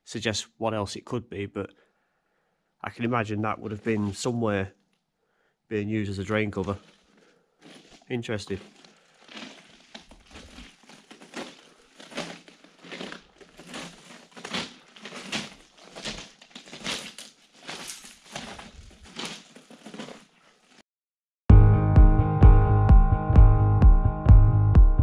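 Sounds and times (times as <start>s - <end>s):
footsteps crunching: 3.6s - 4.4s, 6.1s - 20.8s.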